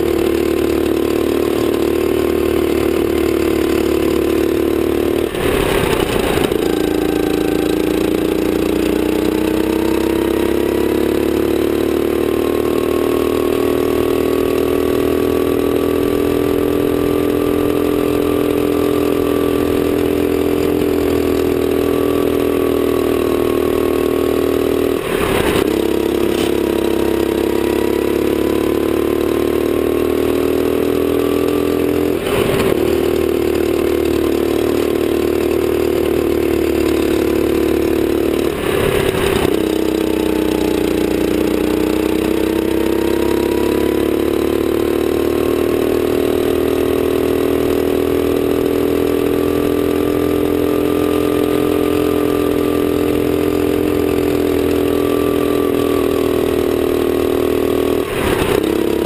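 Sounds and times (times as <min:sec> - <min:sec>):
kart engine at high revs: 0:00.0 - 0:59.0
short rushes of noise: 0:05.3 - 0:06.6, 0:25.0 - 0:26.6, 0:58.1 - 0:58.8.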